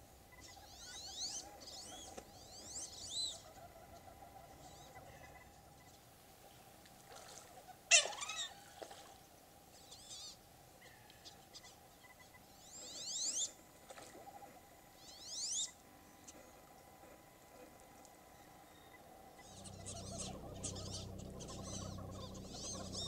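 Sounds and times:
duck squealing: 19.4s - 23.0s
duck wavering call: 19.4s - 23.0s
thin rising whistles: 19.4s - 23.0s.

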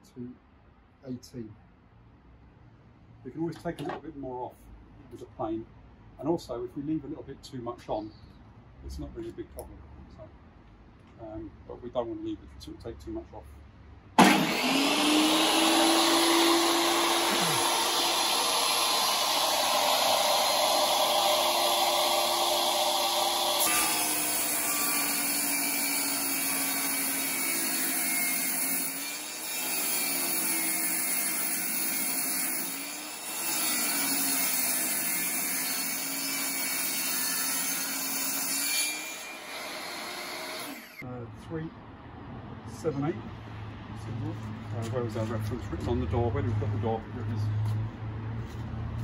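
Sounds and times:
table saw ripping wood: 14.2s - 41.0s.

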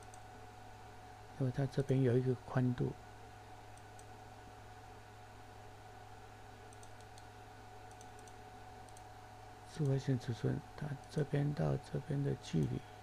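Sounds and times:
low electrical hum: 0.0s - 13.0s
computer mouse clicks: 3.7s - 4.1s, 6.7s - 9.1s.

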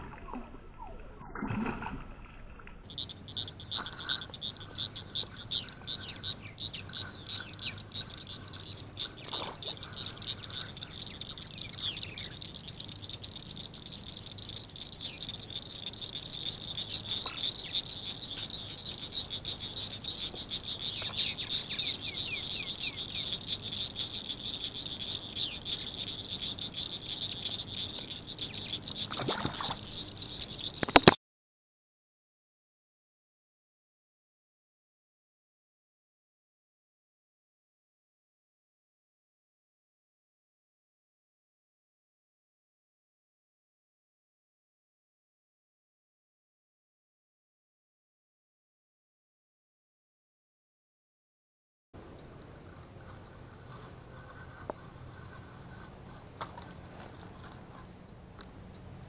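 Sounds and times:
water splash: 0.0s - 2.8s, 29.1s - 29.9s
frogs trilling: 2.9s - 31.2s, 52.0s - 59.0s.

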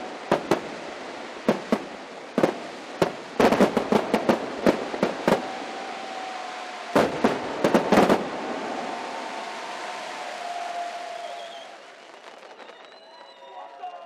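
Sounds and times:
firework hiss and crackle: 0.0s - 13.4s
firework shells bursting with bangs: 1.4s - 5.6s, 6.9s - 9.0s.

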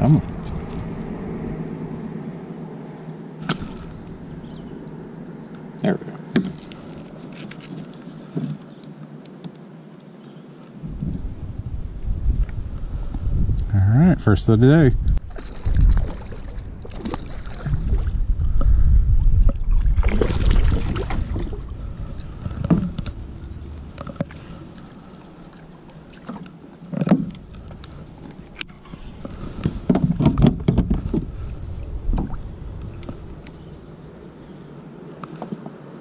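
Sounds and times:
low rumble: 0.0s - 5.8s, 10.8s - 35.1s
water splashing: 3.4s - 4.8s, 15.2s - 18.2s, 19.4s - 34.4s
fishing gear knocking and rustling: 6.4s - 8.7s, 22.4s - 24.9s.

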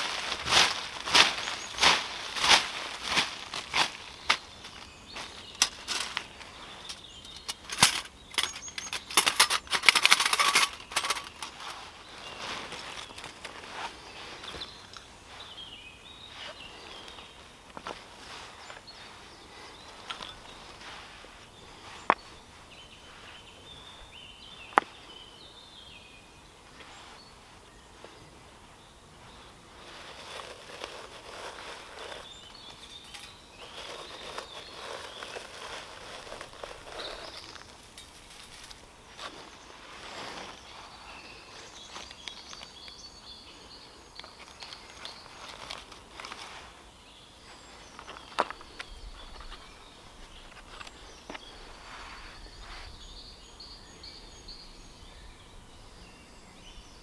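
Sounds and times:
small gear being handled: 0.0s - 15.1s, 29.8s - 42.9s
birdsong: 0.0s - 57.0s
metal panels clinking: 6.9s - 11.8s.

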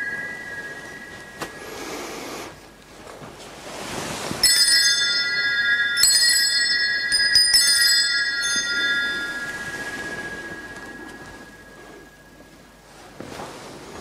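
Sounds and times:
altar bells ringing: 0.0s - 2.6s, 4.3s - 12.9s.

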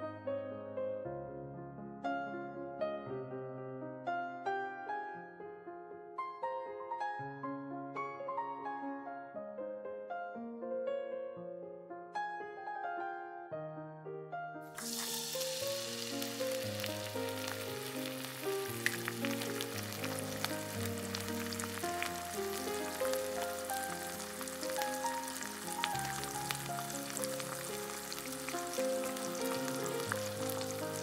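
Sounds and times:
chicken deep-frying in oil: 14.8s - 31.0s
background music with plucked notes: 16.0s - 31.0s.

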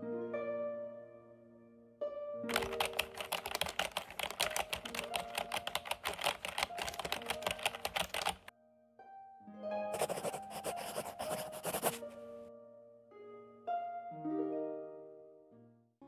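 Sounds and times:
rapid typing key clicks: 2.5s - 8.5s.

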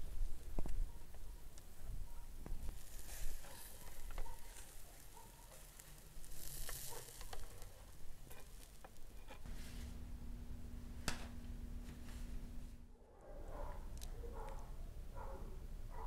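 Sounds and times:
meat sizzling on a grill: 2.7s - 9.2s
low steady hum: 7.7s - 16.0s.

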